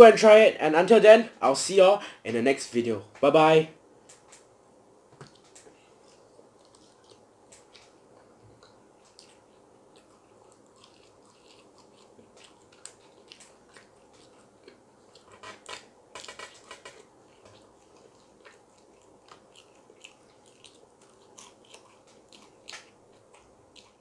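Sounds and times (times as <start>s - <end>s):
chewing crunchy fried food: 5.2s - 24.0s.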